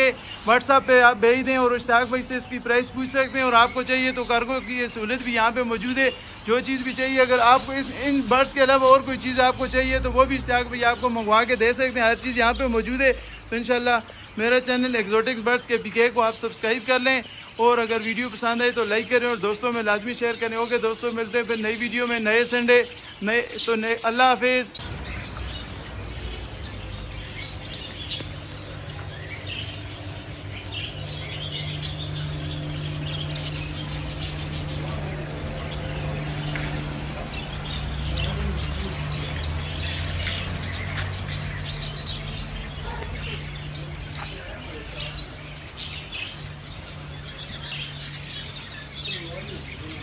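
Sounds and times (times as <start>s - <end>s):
caged birds chirping: 0.0s - 50.0s
steady low hum: 24.8s - 39.0s.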